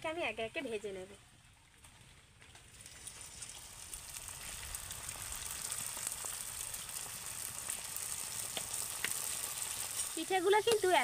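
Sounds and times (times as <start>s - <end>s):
dough sizzling in hot oil: 2.6s - 11.0s.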